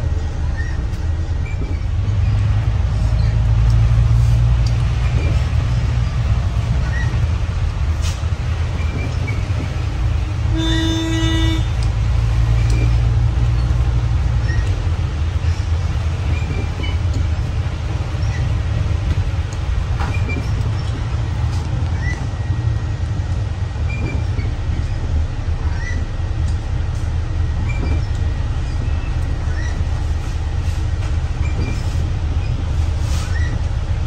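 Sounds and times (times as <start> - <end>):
vehicle engine rumble: 0.0 - 34.0
horn toot: 10.5 - 11.8.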